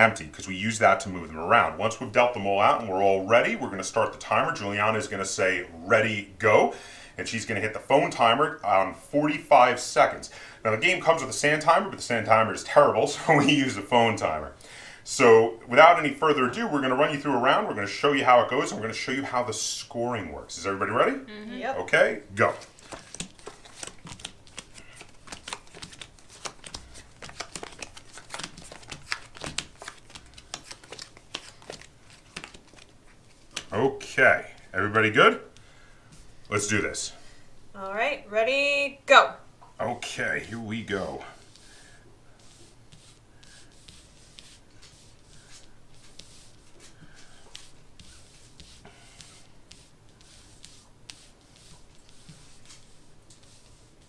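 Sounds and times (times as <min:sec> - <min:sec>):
cards swishing on cloth: 0:22.5 - 0:33.8, 0:41.4 - 0:54.0
cards clicking and rustling on table: 0:22.6 - 0:33.8.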